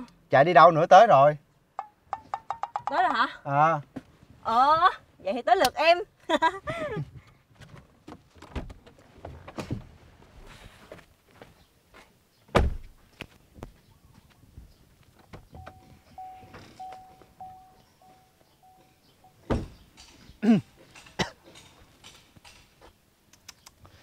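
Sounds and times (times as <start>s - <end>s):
truck door shutting thump: 12.5s - 12.9s, 19.4s - 19.8s
short beeps: 15.6s - 19.4s.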